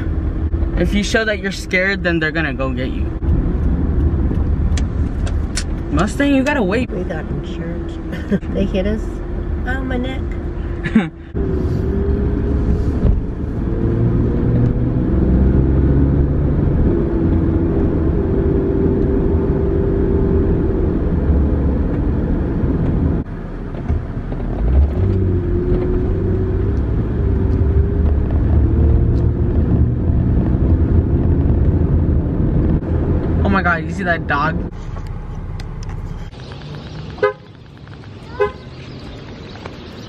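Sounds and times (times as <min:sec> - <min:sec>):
car engine and road rumble: 0:00.0 - 0:40.0.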